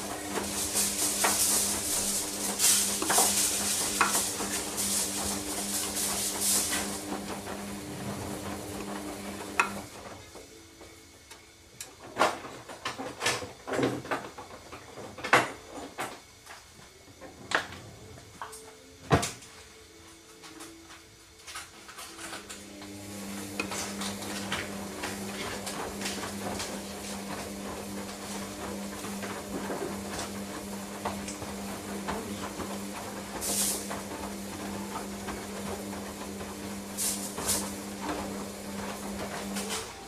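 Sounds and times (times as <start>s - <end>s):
washing machine motor humming: 0.0s - 40.0s.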